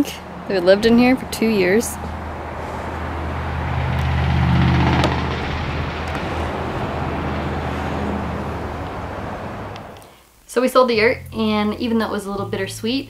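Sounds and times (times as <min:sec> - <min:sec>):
vehicle engine humming: 0:00.0 - 0:10.0.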